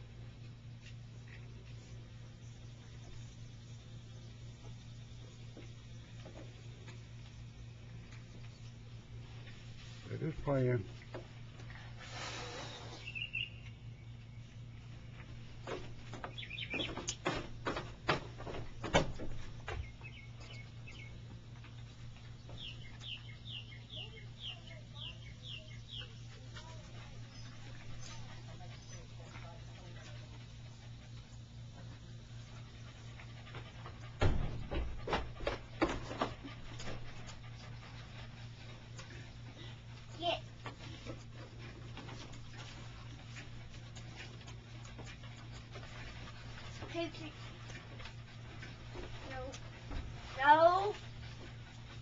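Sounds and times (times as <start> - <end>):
raccoon chirping and chittering: 12.6 - 14.3, 16.2 - 17.2, 22.3 - 29.5
knocks on wooden porch swing: 15.6 - 20.0, 33.5 - 37.1
thump: 34.2 - 36.0.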